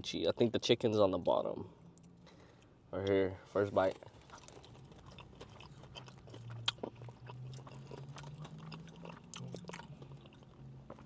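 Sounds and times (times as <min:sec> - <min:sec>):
low steady hum: 0:00.0 - 0:11.0
person chewing wetly: 0:04.0 - 0:11.0.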